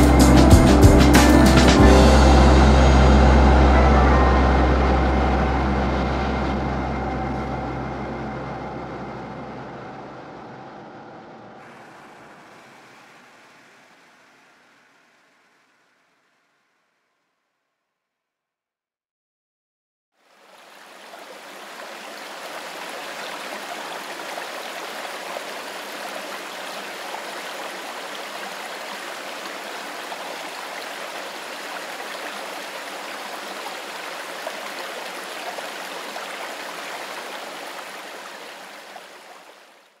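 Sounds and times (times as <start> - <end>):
running water rushing: 11.6 - 16.8, 20.2 - 40.0.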